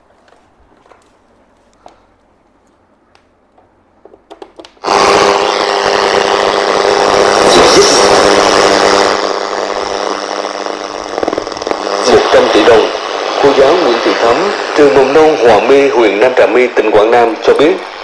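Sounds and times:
speaker hum: 0:00.0 - 0:18.0
radio static hiss: 0:04.8 - 0:18.0.

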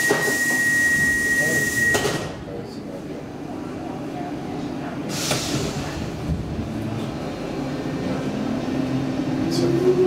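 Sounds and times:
train car rumble: 0:02.2 - 0:10.0.

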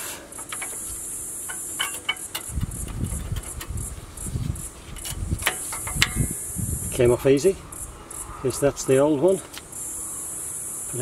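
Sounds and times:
high-pitched insect chorus: 0:00.0 - 0:11.0
metallic clicks and scrapes: 0:00.3 - 0:06.4.

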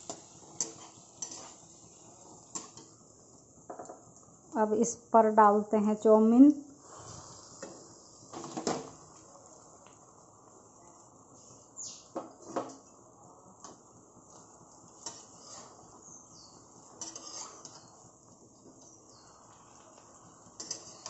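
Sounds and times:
metal utensils clattering on pan: 0:00.1 - 0:01.6, 0:17.0 - 0:17.9, 0:20.6 - 0:21.0
spatula knocking and scraping pan: 0:17.0 - 0:17.9.

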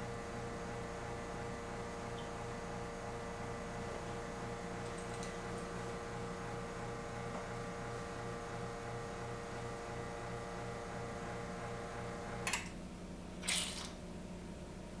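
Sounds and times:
espresso machine humming: 0:00.0 - 0:12.4.

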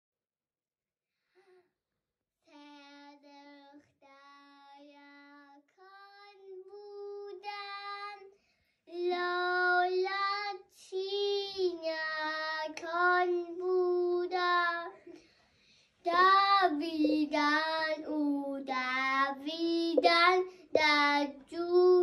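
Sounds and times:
girls singing unaccompanied: 0:16.6 - 0:18.0.

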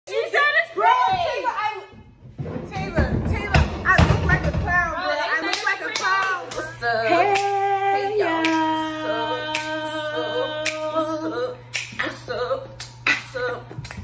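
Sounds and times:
woman singing long notes: 0:06.6 - 0:13.9
sharp claps: 0:11.7 - 0:12.0.

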